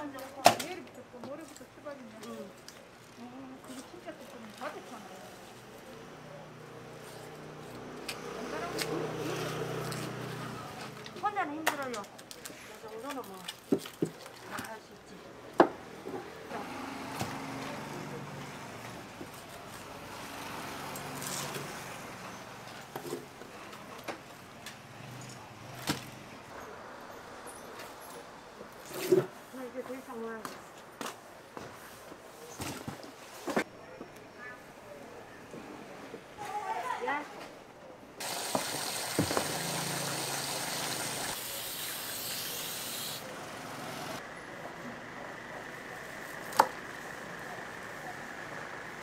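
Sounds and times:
water jetting from hose: 38.2 - 43.3.

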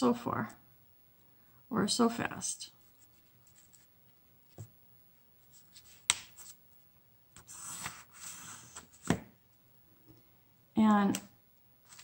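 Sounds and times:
paper rustling and sliding: 7.4 - 9.2.

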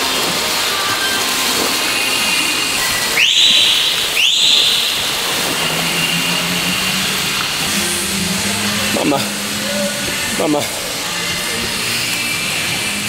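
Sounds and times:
indoor pool hall noise: 0.0 - 13.0
swimmer splashing: 0.0 - 13.0
loud whistle blasts: 2.0 - 7.8.

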